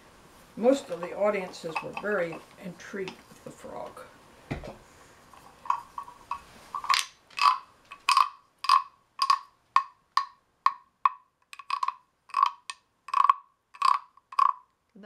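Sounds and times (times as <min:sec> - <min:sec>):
wooden frog rasp croaks: 0:05.5 - 0:14.7.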